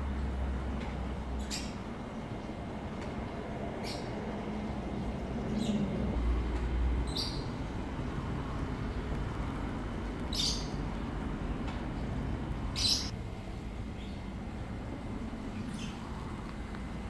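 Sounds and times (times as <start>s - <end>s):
low outdoor rumble: 0.0s - 17.0s
high bird chirps: 12.8s - 13.1s.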